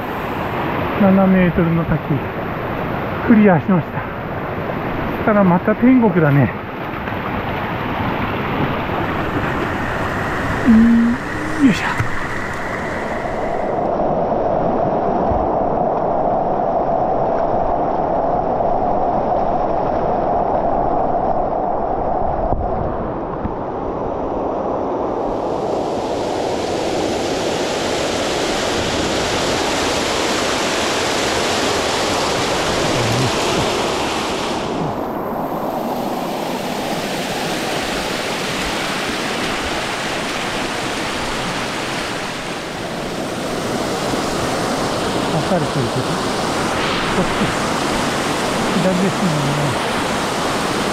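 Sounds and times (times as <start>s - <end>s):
stream rushing over rocks: 4.8s - 13.8s, 26.0s - 50.9s.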